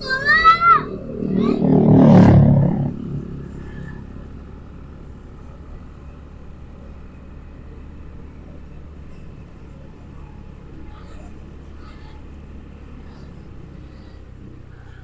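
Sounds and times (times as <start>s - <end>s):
motor scooter running: 0.0s - 15.0s
road and wind noise: 0.0s - 15.0s
loud low sound: 0.1s - 4.9s.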